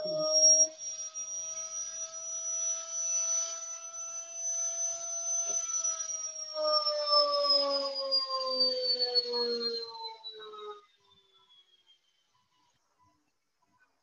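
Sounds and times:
electric motor whining: 0:00.0 - 0:10.8.

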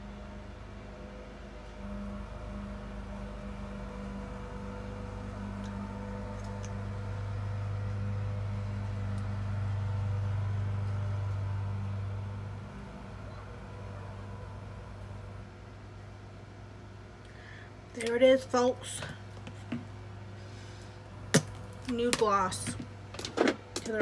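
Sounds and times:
low mechanical hum: 0:00.0 - 0:24.0.

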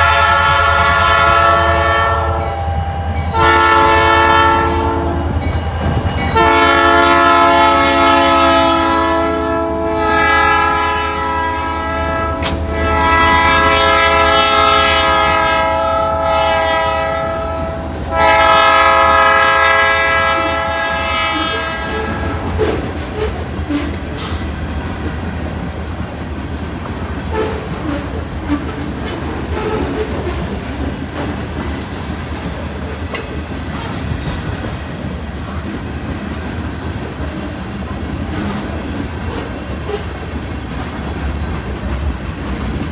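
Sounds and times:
locomotive air horn blasts: 0:00.0 - 0:05.4, 0:06.3 - 0:22.8
freight cars rolling: 0:19.6 - 0:42.9.

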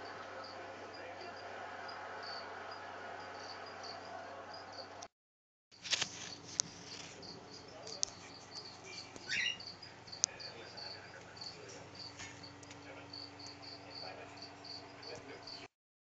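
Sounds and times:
cricket chirping: 0:00.0 - 0:05.0, 0:05.8 - 0:15.7.

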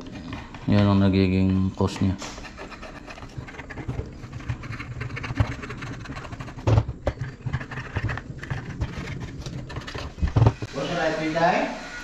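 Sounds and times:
metal tool scraping grime: 0:02.2 - 0:10.6.

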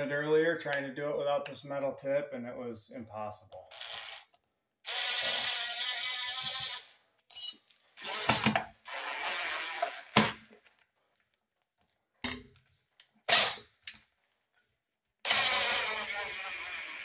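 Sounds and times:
cordless drill driving a screw: 0:04.9 - 0:06.9, 0:08.0 - 0:10.3, 0:15.3 - 0:17.0.

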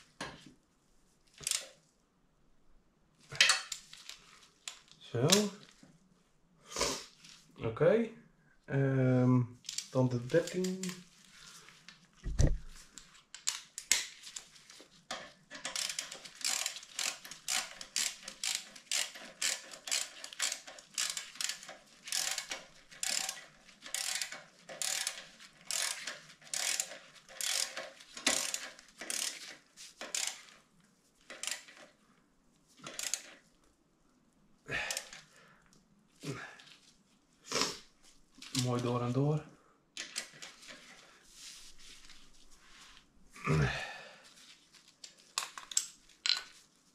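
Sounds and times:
ratchet wrench clicking: 0:15.6 - 0:30.5, 0:31.3 - 0:31.8, 0:32.9 - 0:33.3.

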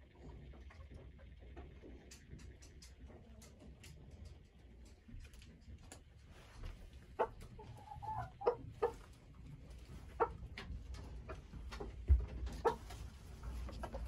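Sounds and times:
chickens clucking: 0:04.2 - 0:14.0.

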